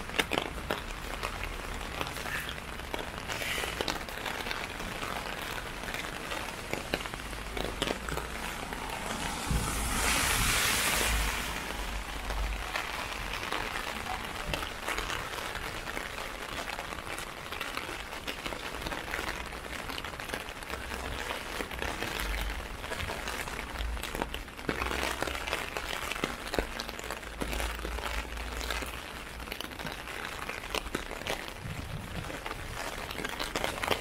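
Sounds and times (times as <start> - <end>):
rain drops hitting plastic umbrella: 0.0 - 34.0
rain hissing: 1.2 - 16.4.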